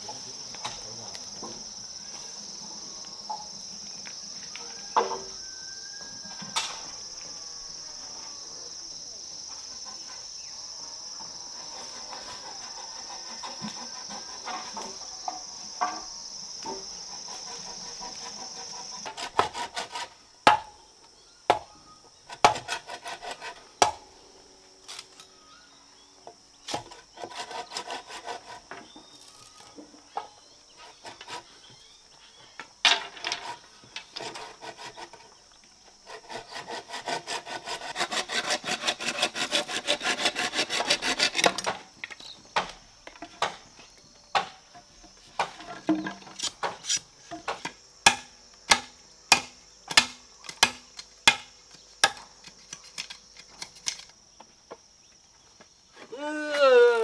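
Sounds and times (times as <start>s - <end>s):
machete scraping bamboo: 16.7s - 20.2s, 22.3s - 24.0s, 26.6s - 29.8s, 30.8s - 31.6s, 32.9s - 35.4s, 36.0s - 43.7s, 45.3s - 54.2s
machete knocking on bamboo: 45.4s - 52.2s.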